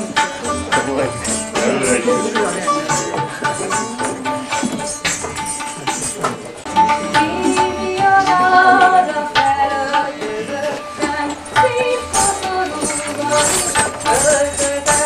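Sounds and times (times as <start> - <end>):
tabla strokes: 0.0 - 15.0.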